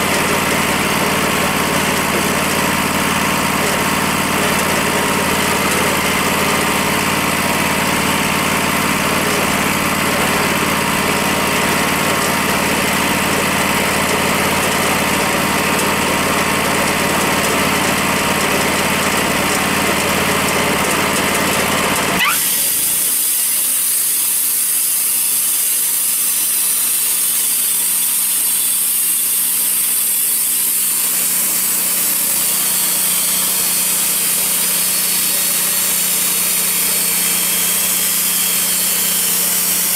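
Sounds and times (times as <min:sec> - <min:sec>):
sawmill engine idling: 0:00.0 - 0:39.9
short rising tone: 0:22.2 - 0:22.8
high steady saw hiss: 0:22.2 - 0:39.9.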